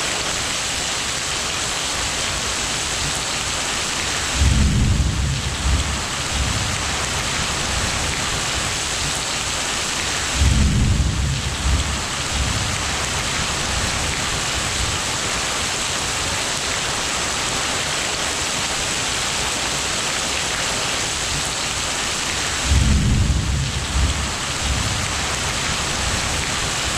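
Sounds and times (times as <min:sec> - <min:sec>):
rain hissing: 0:00.0 - 0:26.9
thunder rolling: 0:04.3 - 0:08.7, 0:10.3 - 0:15.0, 0:22.6 - 0:26.9.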